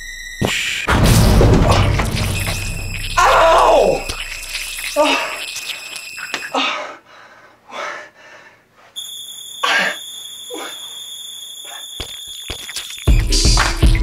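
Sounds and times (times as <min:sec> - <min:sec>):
loud music: 0:00.9 - 0:04.1
high-pitched tone: 0:01.0 - 0:06.5.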